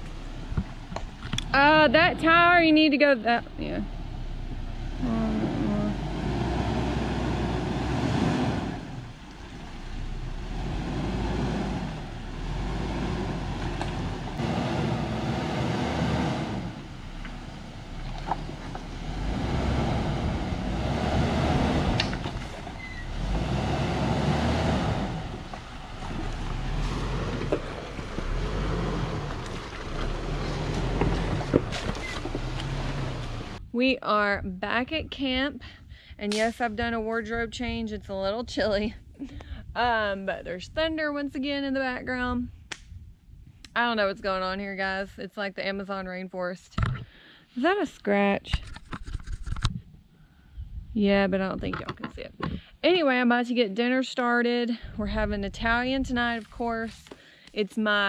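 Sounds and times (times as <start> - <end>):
suv engine crawling over rocks: 0.0 - 33.6.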